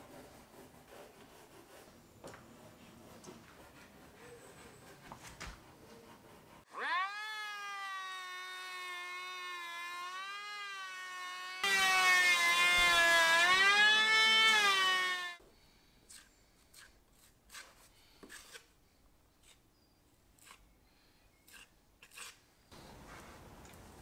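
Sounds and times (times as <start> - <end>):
electric hand planer whining: 6.7 - 15.4
planer cutting wood: 6.7 - 15.4.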